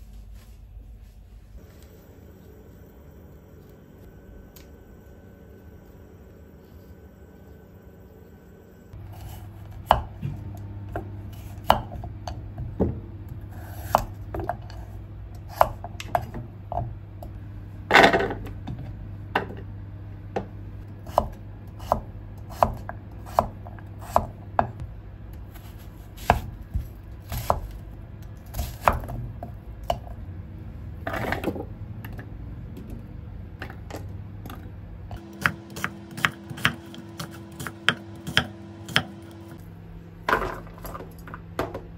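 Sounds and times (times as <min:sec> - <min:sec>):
steady low hum: 0:00.0 - 0:41.9
knife chopping on wooden board: 0:09.8 - 0:13.0, 0:21.0 - 0:24.8, 0:25.6 - 0:27.8, 0:35.2 - 0:39.2.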